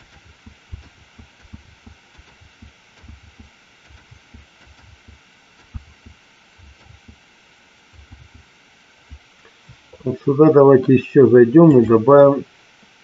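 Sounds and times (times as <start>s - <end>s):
steady background hiss: 0.0s - 13.0s
computer keyboard thuds: 0.2s - 7.2s.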